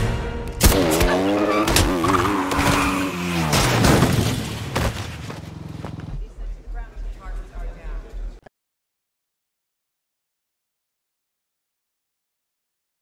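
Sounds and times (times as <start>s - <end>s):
motorcycle sliding and squealing: 0.8s - 6.1s.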